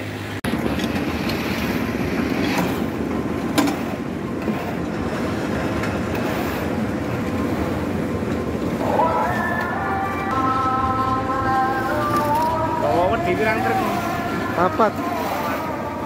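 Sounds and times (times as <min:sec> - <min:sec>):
construction machinery rattling: 0:00.1 - 0:08.6.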